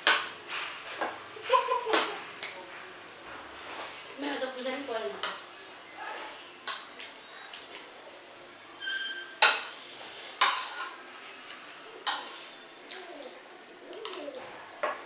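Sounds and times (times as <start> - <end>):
cutlery clinking on plates: 8.9 - 9.8, 10.4 - 11.0.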